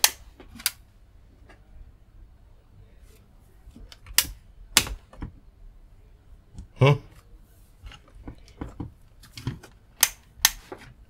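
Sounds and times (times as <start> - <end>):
faint handling noises: 6.5 - 11.0
switch clicks: 10.0 - 10.7.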